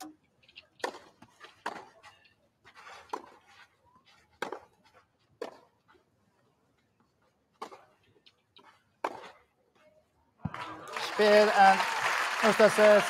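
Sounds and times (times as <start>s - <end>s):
racquets hitting tennis ball: 0.5s - 2.2s, 4.3s - 5.7s, 7.5s - 9.5s.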